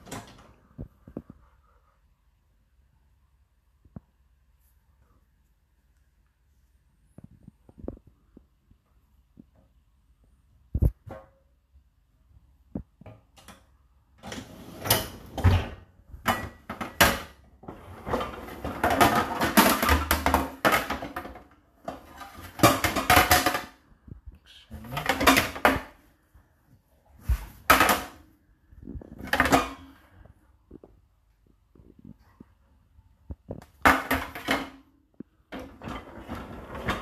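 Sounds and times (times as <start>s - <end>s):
dishes clattering in dishwasher racks: 14.3s - 23.7s.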